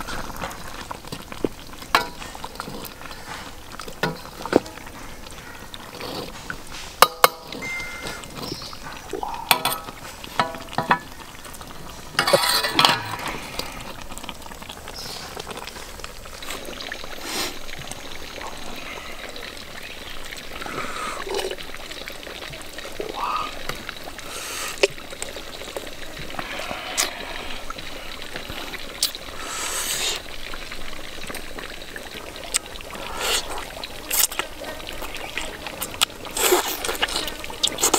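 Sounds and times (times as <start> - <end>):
broth pouring over chicken: 13.0 - 37.9.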